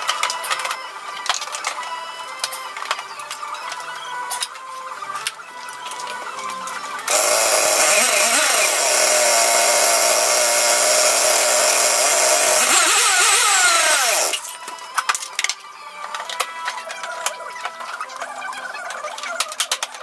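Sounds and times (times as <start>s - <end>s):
motor whirring: 7.1s - 14.6s.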